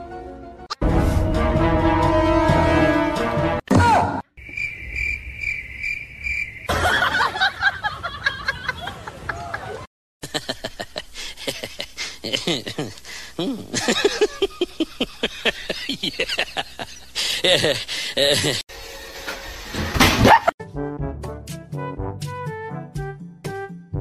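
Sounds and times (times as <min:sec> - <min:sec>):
cricket chirping: 0:04.4 - 0:06.7.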